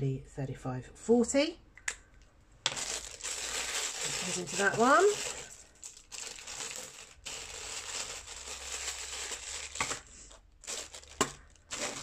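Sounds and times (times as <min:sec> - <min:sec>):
plastic bag crinkling: 0:02.7 - 0:12.0.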